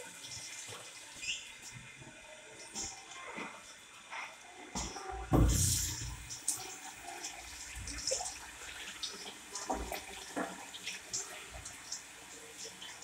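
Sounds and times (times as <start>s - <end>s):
tap water running into sink: 4.7s - 13.0s.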